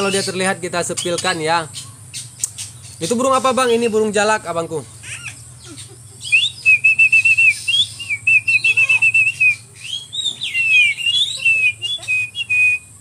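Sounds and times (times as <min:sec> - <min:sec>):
man whistling: 0:06.3 - 0:13.0.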